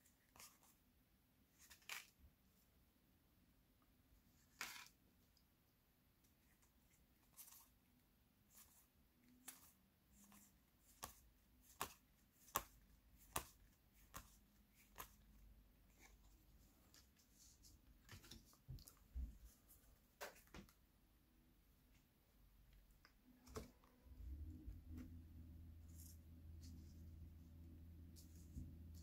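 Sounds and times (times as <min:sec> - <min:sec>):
cards swishing: 0:08.5 - 0:15.3.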